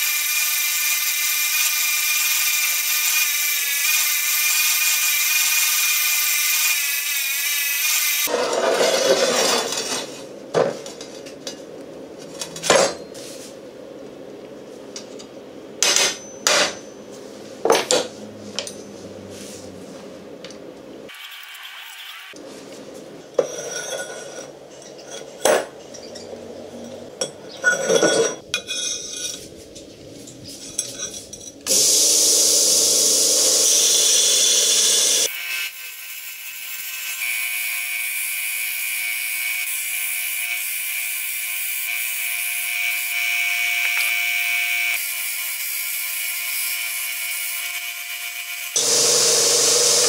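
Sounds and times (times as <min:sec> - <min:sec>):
belt grinder grinding steel: 0:00.0 - 0:10.0, 0:31.7 - 0:50.0
harsh grinding: 0:48.8 - 0:50.0.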